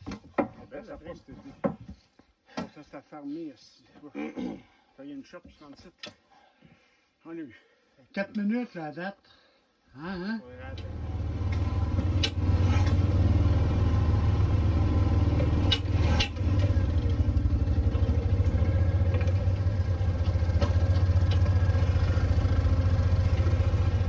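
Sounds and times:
sharp knocks and rattles: 0.0 - 2.8, 10.8 - 13.5, 15.2 - 24.0
off-road vehicle engine running: 10.6 - 24.0.

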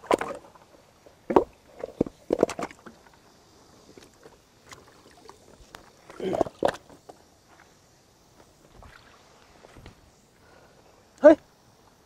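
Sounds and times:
water splashing: 4.0 - 7.0, 8.7 - 10.0.

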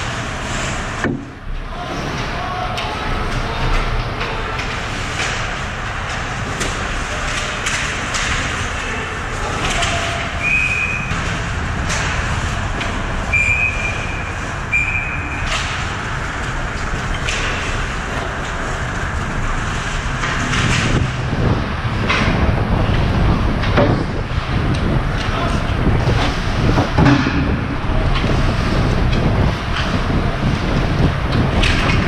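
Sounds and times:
crowd din in rink: 0.0 - 32.0
clacks of sticks and puck: 0.5 - 14.2, 14.8 - 21.2, 31.0 - 32.0
referee's whistle blasts: 10.4 - 11.1, 13.3 - 15.4.

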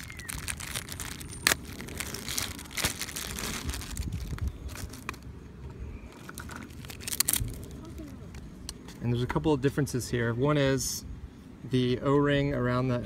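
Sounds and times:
plastic bag crinkling: 0.0 - 5.2, 6.2 - 8.1.

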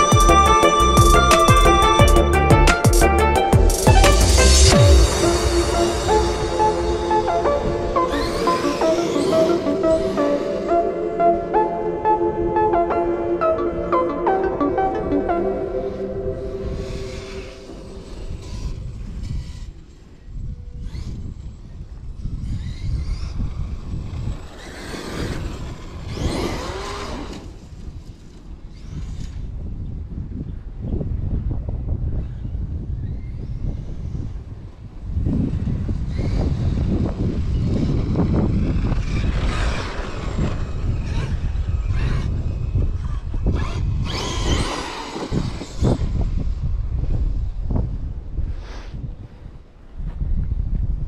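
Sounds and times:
electric motor whining: 0.0 - 12.9, 35.9 - 46.3
low rumble: 0.3 - 14.0
wind rumble on microphone: 15.9 - 51.0.

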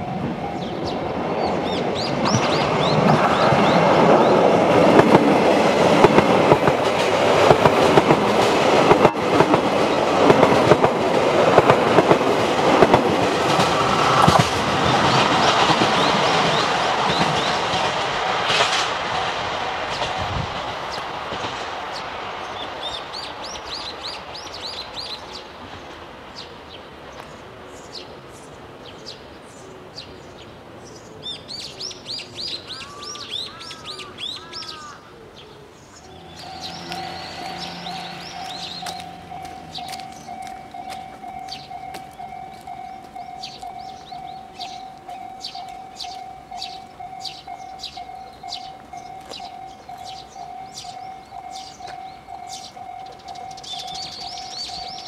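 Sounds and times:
birds chirping: 0.2 - 4.7, 14.8 - 17.8, 21.9 - 55.0
train wheels clicking over rail joints: 2.0 - 24.8, 36.4 - 55.0.

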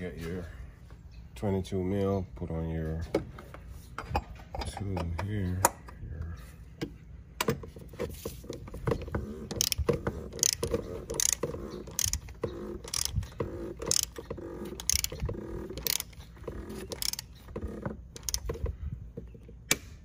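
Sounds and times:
torque wrench ratchet clicking: 9.5 - 17.4, 18.2 - 18.5.

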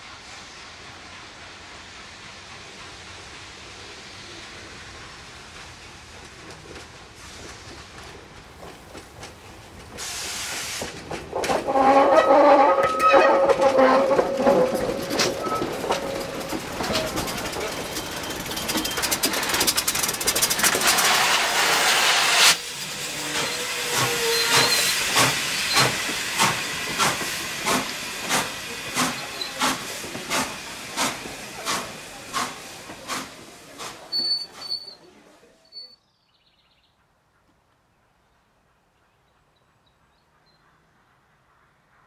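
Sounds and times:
loud steam hiss: 0.0 - 8.2, 9.5 - 12.7, 13.6 - 35.0
steam locomotive regular beat: 0.0 - 12.1, 13.0 - 34.7.

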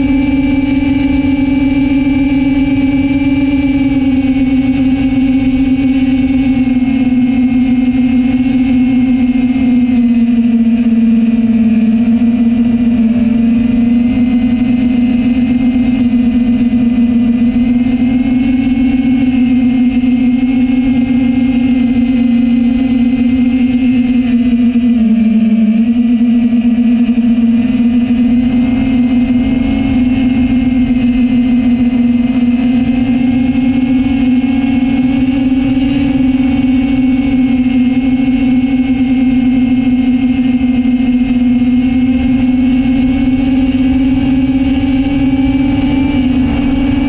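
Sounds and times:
quadcopter motors buzzing: 0.0 - 47.0
low rumble: 27.0 - 39.9, 40.5 - 47.0.

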